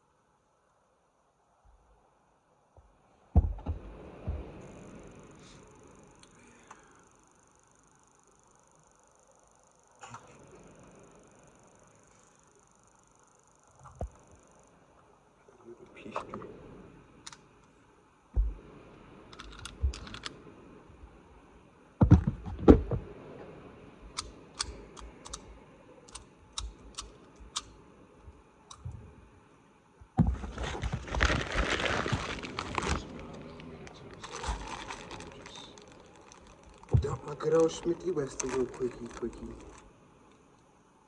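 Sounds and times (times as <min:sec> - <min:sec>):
dull knocks: 0:03.3 - 0:04.5
small sharp clicks: 0:24.1 - 0:25.5, 0:26.1 - 0:27.8
rustling and scraping: 0:30.2 - 0:39.8.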